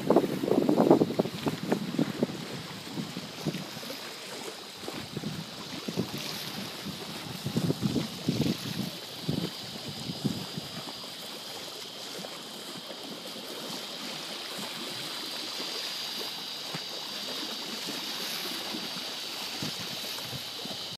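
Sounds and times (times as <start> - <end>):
wind thumps on microphone: 0.0 - 3.9, 4.8 - 11.0
waves lapping against seawall: 0.0 - 20.9.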